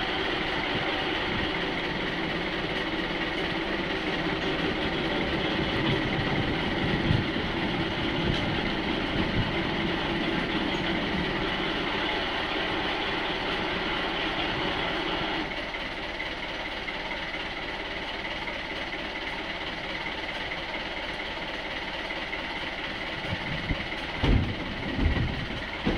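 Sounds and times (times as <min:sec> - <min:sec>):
boat engine running: 0:00.0 - 0:25.9
boat bumping dock thumps: 0:24.2 - 0:25.9.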